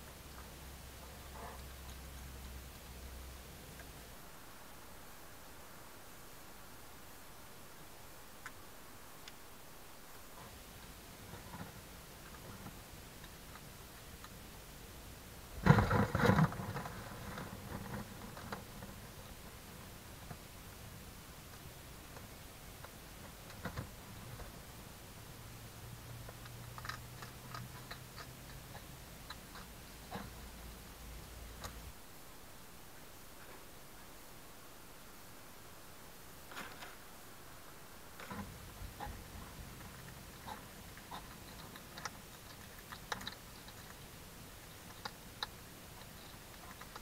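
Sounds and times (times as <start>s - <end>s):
faint low hum: 0.0s - 47.0s
hedgehog crunching dry food: 10.4s - 14.5s, 21.3s - 31.8s, 38.0s - 47.0s.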